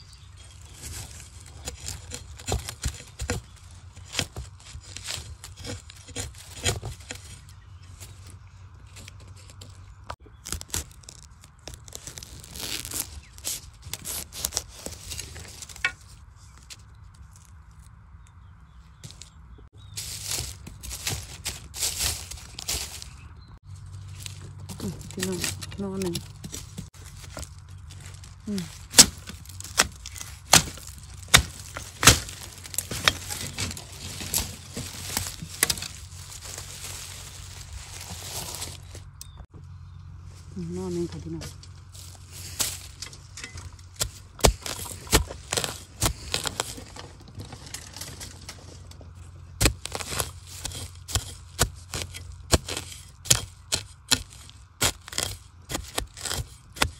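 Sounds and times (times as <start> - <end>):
dry bamboo leaves crackling: 0.0 - 18.4, 19.0 - 56.9
knife scraping through soil: 0.4 - 8.1, 24.1 - 39.3, 42.0 - 48.2, 49.6 - 56.9
metal blade chopping bamboo: 1.1 - 7.4, 28.2 - 36.7, 42.6 - 47.0, 49.6 - 56.9.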